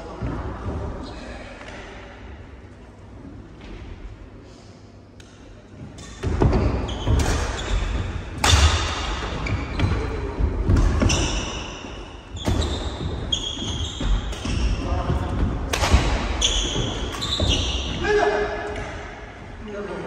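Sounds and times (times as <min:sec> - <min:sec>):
rackets hitting shuttlecock: 0:06.0 - 0:09.9, 0:15.6 - 0:17.7.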